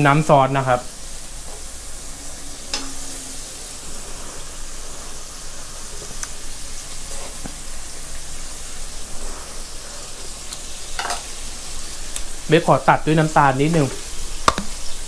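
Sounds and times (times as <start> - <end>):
food sizzling in a wok: 0.0 - 15.0.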